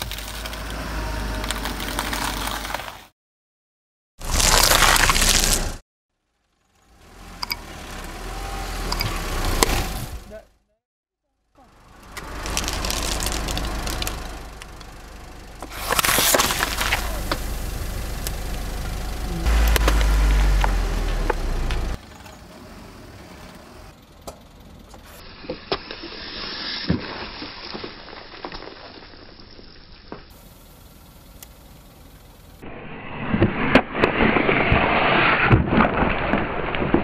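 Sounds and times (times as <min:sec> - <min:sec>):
car engine rumbling: 0:00.0 - 0:03.0, 0:04.2 - 0:25.7, 0:29.6 - 0:34.5
tyre crushing rind crackling: 0:04.2 - 0:05.8, 0:12.0 - 0:15.0, 0:15.6 - 0:17.6, 0:19.4 - 0:22.0.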